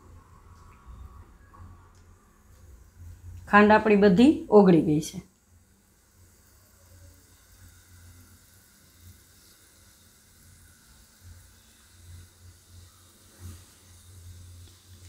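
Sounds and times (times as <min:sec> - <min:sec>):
low steady hum: 0:00.0 - 0:15.0
syrup bubbling sizzle: 0:05.3 - 0:15.0.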